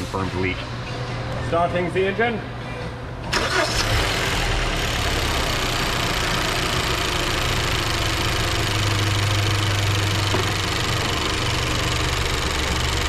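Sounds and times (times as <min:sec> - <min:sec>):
car engine cranking and idling: 0:03.3 - 0:13.0.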